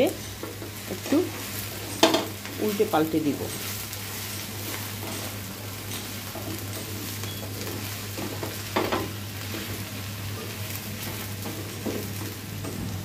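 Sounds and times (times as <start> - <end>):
okra sizzling in oil: 0.0 - 13.0
spatula knocking against pan: 2.0 - 2.3, 8.4 - 9.1.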